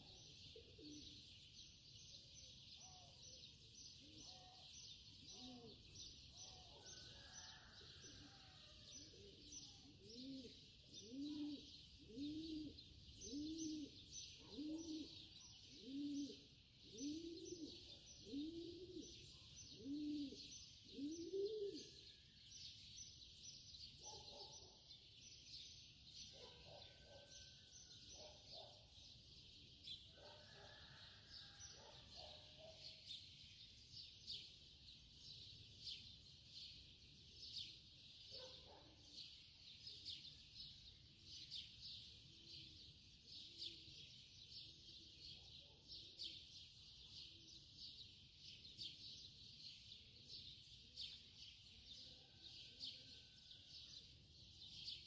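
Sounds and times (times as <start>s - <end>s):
bird low cooing hoots: 0.0s - 1.2s, 5.3s - 22.1s.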